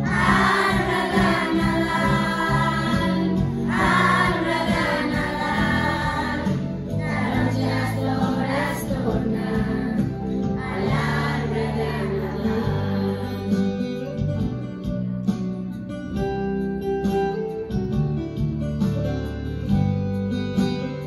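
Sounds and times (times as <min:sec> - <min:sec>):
children singing a carol: 0:00.0 - 0:13.4
strummed acoustic guitar: 0:00.0 - 0:21.0.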